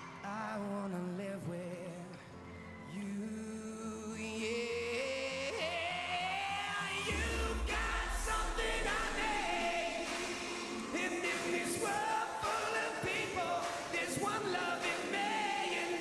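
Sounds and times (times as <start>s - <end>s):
man singing a pop ballad: 0.0s - 16.0s
backing choir singing: 5.7s - 16.0s.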